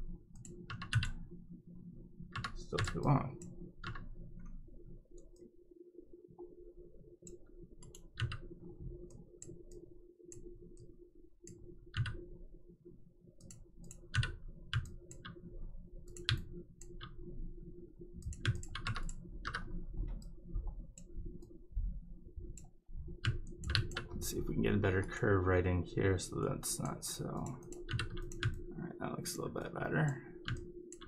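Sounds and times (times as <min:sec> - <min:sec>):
steady low hum: 0:00.0 - 0:31.0.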